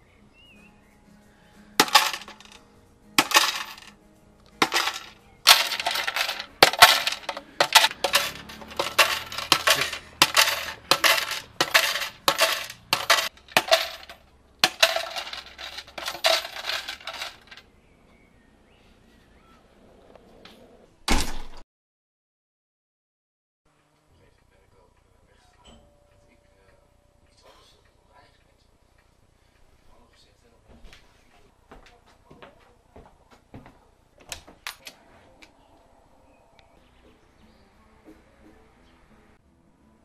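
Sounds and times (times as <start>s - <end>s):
coins clinking into plastic box: 1.8s - 2.6s, 3.2s - 3.9s, 4.6s - 17.6s.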